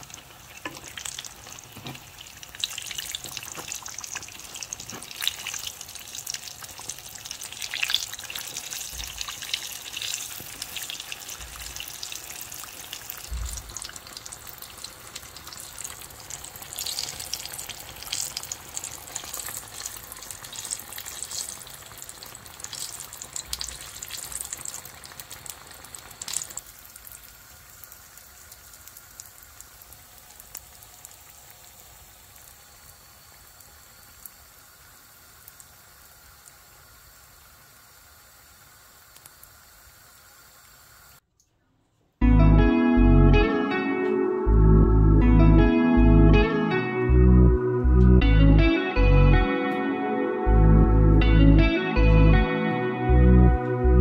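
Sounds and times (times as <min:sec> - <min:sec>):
dough frying in hot oil: 0:00.0 - 0:41.2.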